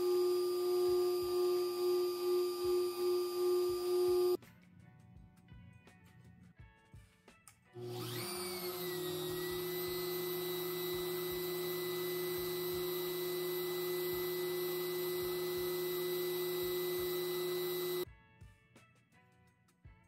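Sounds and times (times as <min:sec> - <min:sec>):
trim router high-pitched whine: 0:00.0 - 0:04.4, 0:07.8 - 0:18.0.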